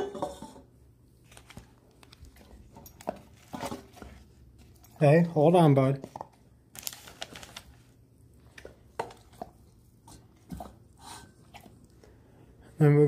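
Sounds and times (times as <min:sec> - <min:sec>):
paper rustle: 0:01.2 - 0:04.8, 0:06.1 - 0:08.0.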